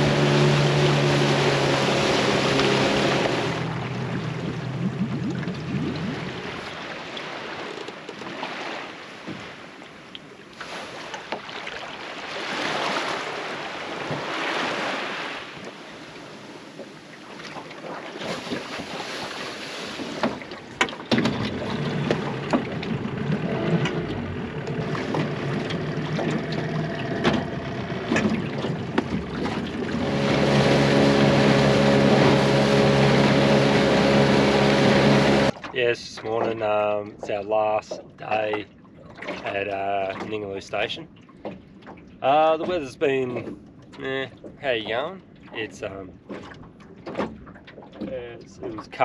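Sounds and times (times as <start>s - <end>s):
water rushing past: 0.0s - 9.7s, 10.6s - 36.7s
outboard motor hum: 0.0s - 49.0s.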